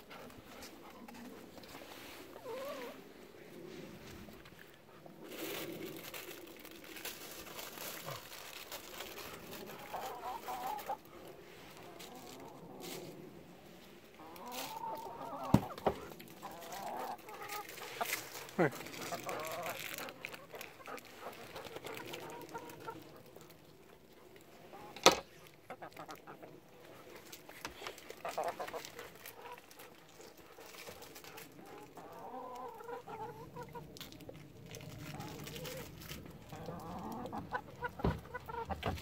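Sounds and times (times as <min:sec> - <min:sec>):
hens clucking: 0:09.5 - 0:11.1, 0:14.1 - 0:24.0, 0:24.6 - 0:26.8, 0:27.6 - 0:30.6, 0:31.2 - 0:34.0, 0:35.1 - 0:39.0.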